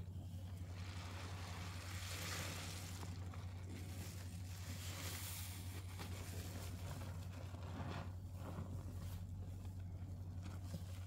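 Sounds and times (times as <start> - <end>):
sponge squishing with soap lather: 0.0 - 11.0
steady low hum: 0.0 - 11.0.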